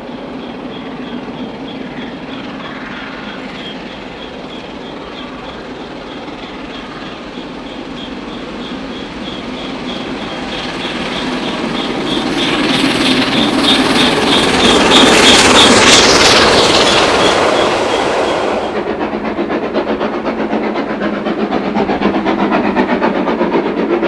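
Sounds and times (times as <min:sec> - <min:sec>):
steam locomotive hauling a train: 0:00.0 - 0:24.0.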